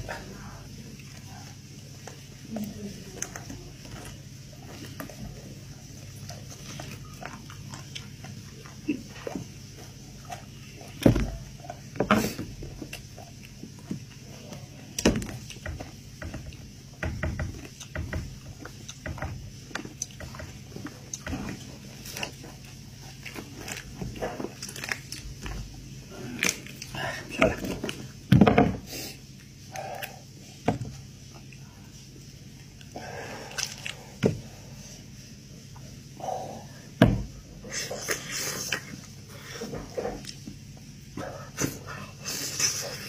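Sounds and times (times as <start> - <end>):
steady low hum: 0.0 - 43.0
wet chewing: 0.4 - 16.8, 17.4 - 28.2, 31.2 - 34.2.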